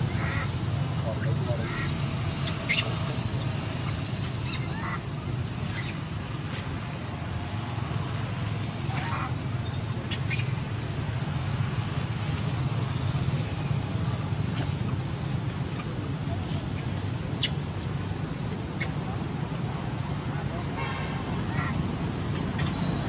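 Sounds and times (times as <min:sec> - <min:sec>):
monkeys squeaking and squealing: 0:01.1 - 0:05.0, 0:05.6 - 0:06.6, 0:08.9 - 0:10.6, 0:15.7 - 0:17.8, 0:18.6 - 0:20.7, 0:21.5 - 0:23.0.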